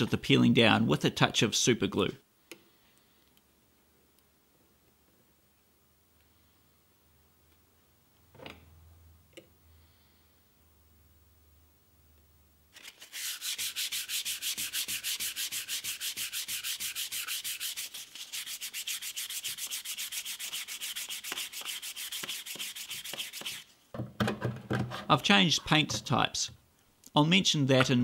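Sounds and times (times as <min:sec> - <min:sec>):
hand sanding rubbing strokes: 0:12.8 - 0:23.7.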